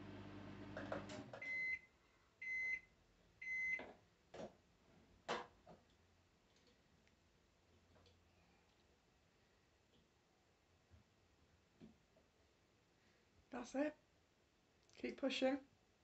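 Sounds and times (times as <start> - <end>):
microwave oven humming: 0.0 - 1.8.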